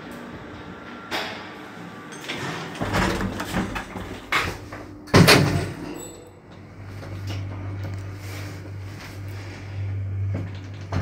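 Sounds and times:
low hum: 0:00.0 - 0:11.0
lift door rattling: 0:02.2 - 0:06.2
door slamming shut: 0:05.1 - 0:05.8.

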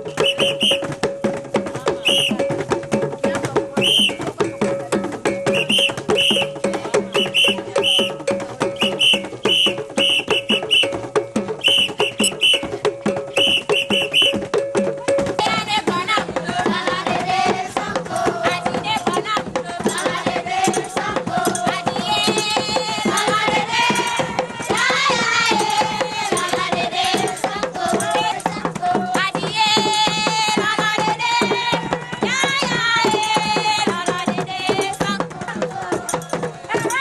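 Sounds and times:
drumming with steady beat: 0:00.0 - 0:37.0
group of voices singing: 0:15.0 - 0:37.0.

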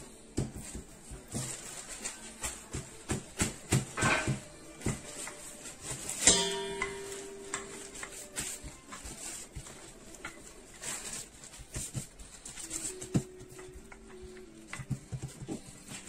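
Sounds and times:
plastic bag crinkling: 0:05.6 - 0:13.3.

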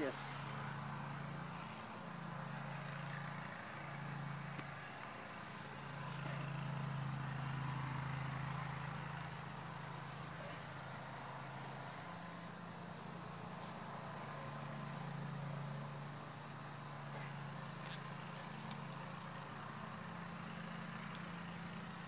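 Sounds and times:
high-pitched insect drone: 0:00.0 - 0:22.0.

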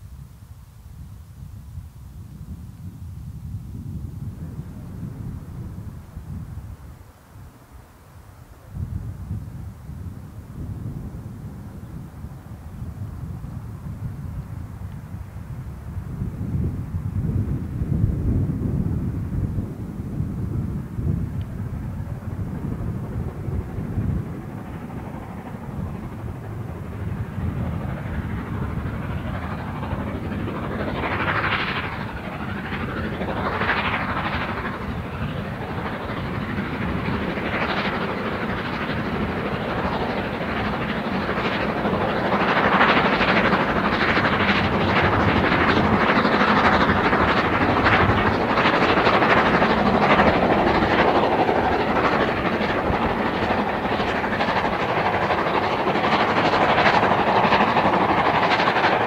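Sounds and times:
train wheels on track: 0:21.3 - 0:59.0
steam locomotive exhaust: 0:25.7 - 0:59.0.

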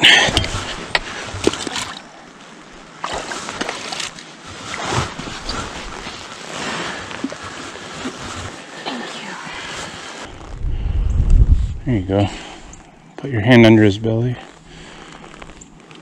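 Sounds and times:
river water splashing at bank: 0:01.4 - 0:02.1, 0:03.0 - 0:04.3.

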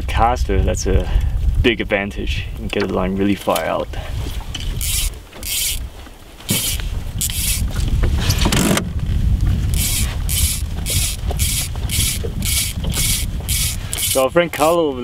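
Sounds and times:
wind rumble on microphone: 0:00.0 - 0:15.0
fly line zipping through guides: 0:04.7 - 0:05.9, 0:06.5 - 0:07.7, 0:09.7 - 0:14.3.

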